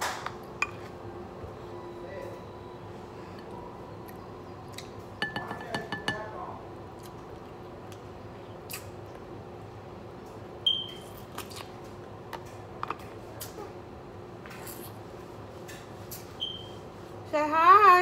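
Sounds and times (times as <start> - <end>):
steady low hum: 0.0 - 18.0
glass bowl clinking: 5.2 - 6.3.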